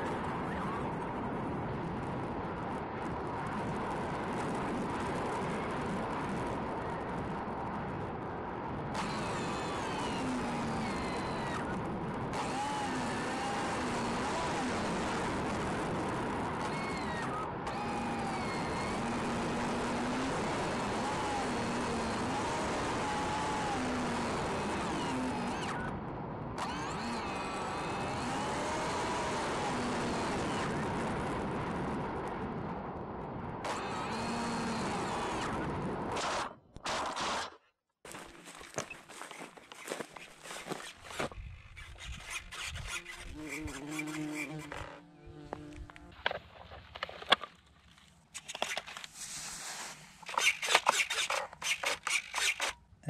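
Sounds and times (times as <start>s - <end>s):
rushing wind: 0.0s - 37.1s, 38.1s - 47.5s
small motor and propeller whine: 0.0s - 53.0s
quick scrapes: 38.1s - 45.0s, 48.3s - 52.8s
hands rustling through clover: 49.1s - 50.2s.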